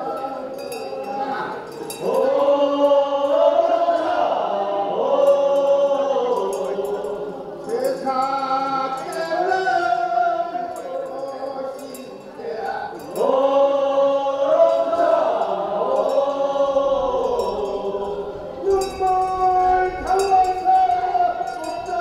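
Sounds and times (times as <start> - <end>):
handbell jingling: 0.0 - 2.4, 5.3 - 13.6, 15.9 - 22.0
group of voices chanting: 0.0 - 12.0, 12.8 - 22.0.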